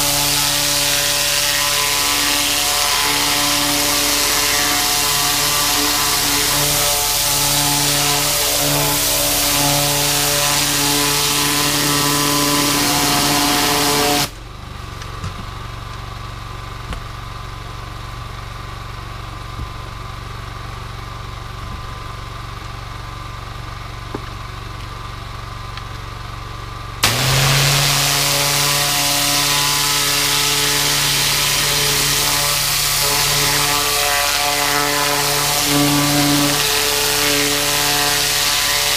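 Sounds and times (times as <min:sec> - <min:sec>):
pressure washer spray hissing: 0:00.0 - 0:14.3, 0:27.0 - 0:38.9
pressure washer engine running: 0:00.0 - 0:38.9.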